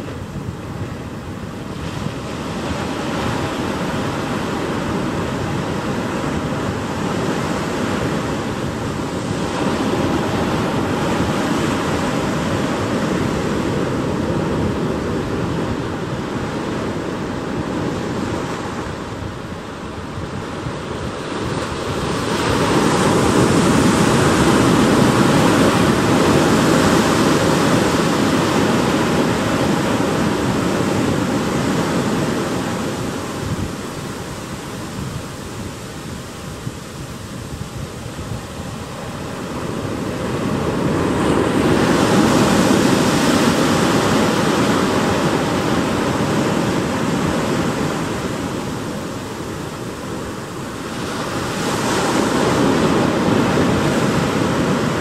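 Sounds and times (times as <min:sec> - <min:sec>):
surf washing among rocks: 0:00.0 - 0:55.0.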